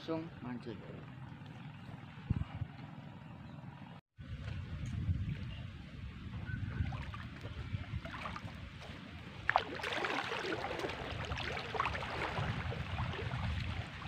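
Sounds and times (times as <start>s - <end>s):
water sloshing around wading legs: 6.8s - 14.0s.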